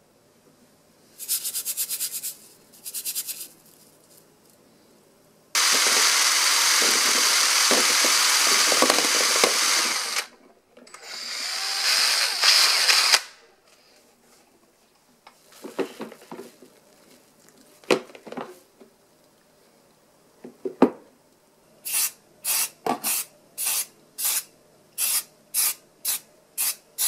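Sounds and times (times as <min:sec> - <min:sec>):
drill whisking liquid: 0:05.6 - 0:10.3.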